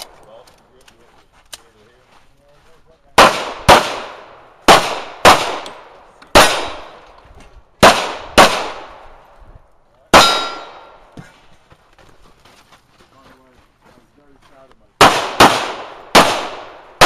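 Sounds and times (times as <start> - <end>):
handgun shots: 3.2 - 7.0, 10.2 - 10.9, 15.0 - 16.8.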